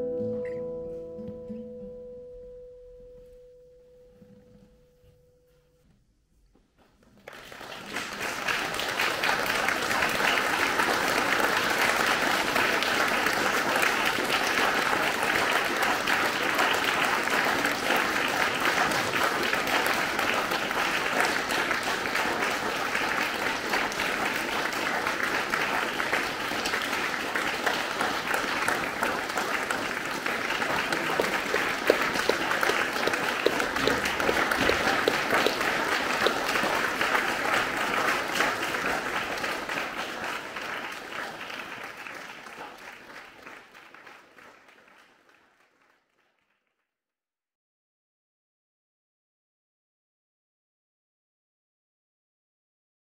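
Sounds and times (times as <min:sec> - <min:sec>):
audience applauding: 0:07.0 - 0:46.6.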